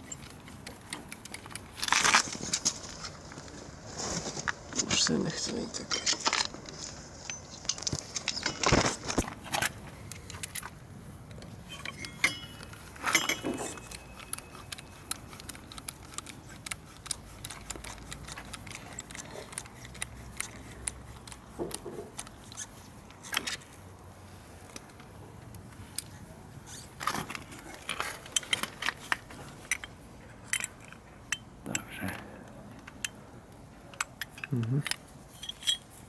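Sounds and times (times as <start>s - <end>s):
metal hand tools clinking: 11.7s - 15.7s, 35.4s - 36.0s
ratchet turning: 13.2s - 23.4s.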